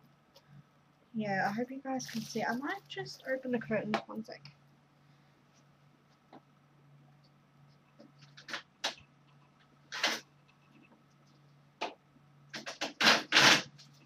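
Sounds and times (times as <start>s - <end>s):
curtain sliding along rail: 12.6s - 13.7s.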